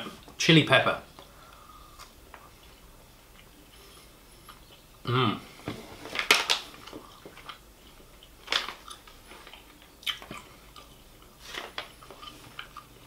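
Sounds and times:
person chewing: 1.2s - 5.1s, 6.6s - 13.0s.

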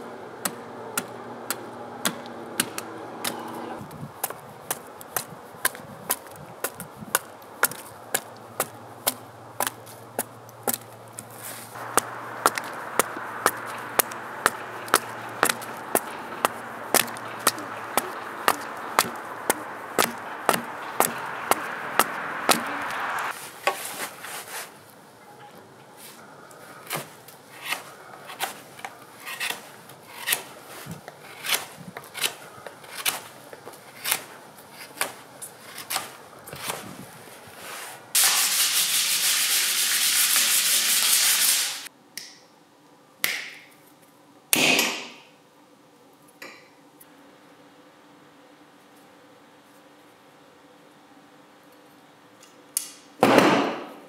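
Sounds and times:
axe chopping wood: 0.4s - 23.3s, 44.6s - 45.2s
knife whittling wood: 0.5s - 24.0s, 26.8s - 37.0s
loud rasping hiss: 11.6s - 23.7s, 38.0s - 41.9s
snips cutting steel strap: 26.9s - 36.8s.

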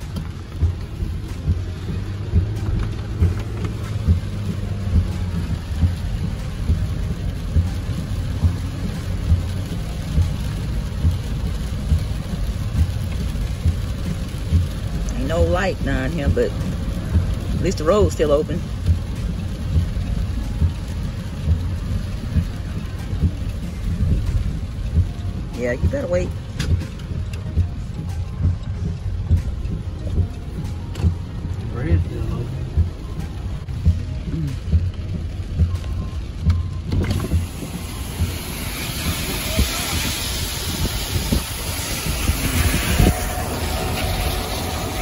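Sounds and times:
low thumps: 0.0s - 15.0s
car driving rumble from inside: 0.0s - 45.0s
hiss: 37.2s - 45.0s.

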